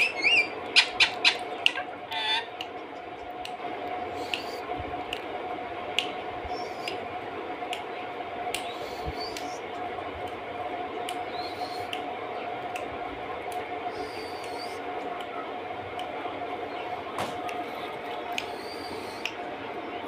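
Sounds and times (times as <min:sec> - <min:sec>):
parakeet chirps: 0:00.0 - 0:01.4
steady hum: 0:00.0 - 0:20.0.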